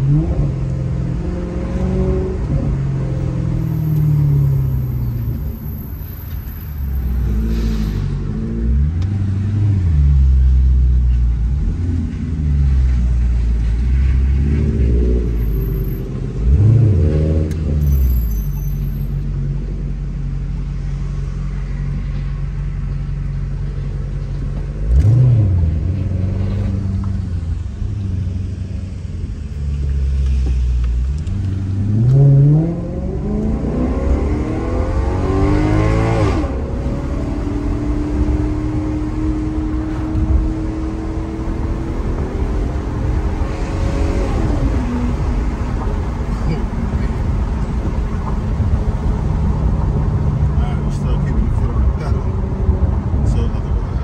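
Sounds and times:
car engine and exhaust revving: 0.0s - 54.0s.

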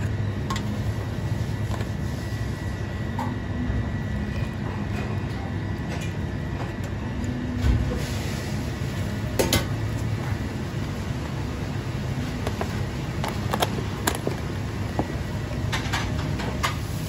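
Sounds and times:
kitchen machinery rumble: 0.0s - 17.0s
plastic handling noise: 12.4s - 15.1s.

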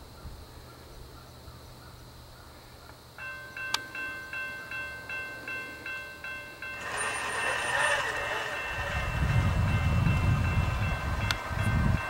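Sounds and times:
railroad crossing warning bell: 3.2s - 12.0s.

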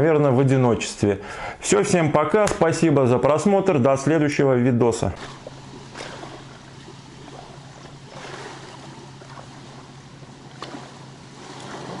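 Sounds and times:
low even hum: 0.0s - 12.0s
water: 1.7s - 12.0s
wind: 2.7s - 12.0s.

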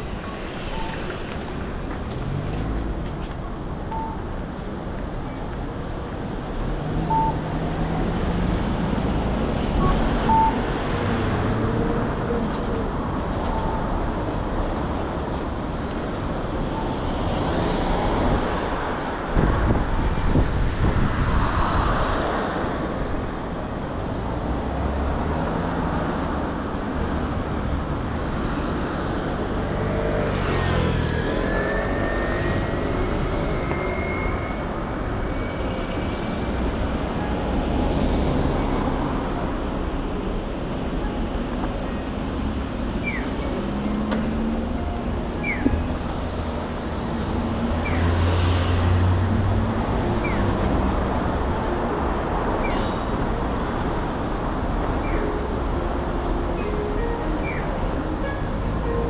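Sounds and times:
vehicle engines passing: 0.0s - 59.0s.

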